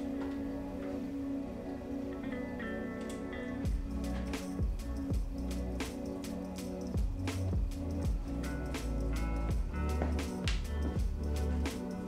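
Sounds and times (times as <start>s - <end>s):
drum beat: 9.5s - 11.3s.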